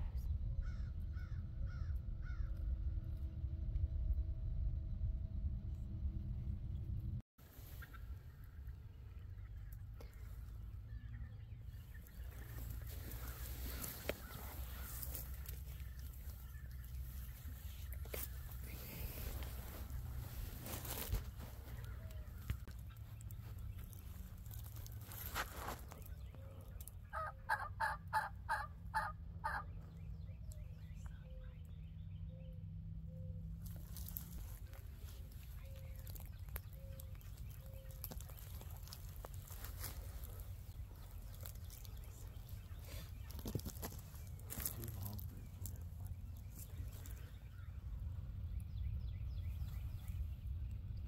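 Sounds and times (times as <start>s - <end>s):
low wind rumble: 0.0s - 51.0s
turkey yelping: 27.1s - 29.7s
bird chirps: 29.4s - 51.0s.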